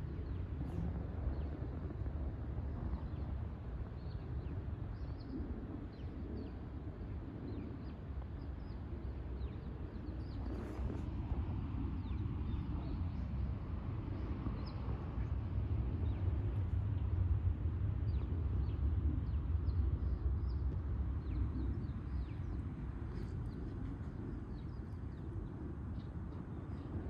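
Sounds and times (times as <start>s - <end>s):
steady low rumble: 10.2s - 27.0s.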